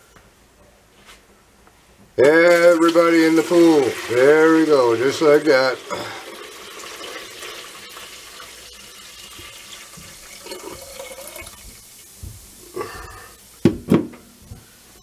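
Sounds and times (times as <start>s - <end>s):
liquid pouring into metal pot: 2.8s - 11.7s.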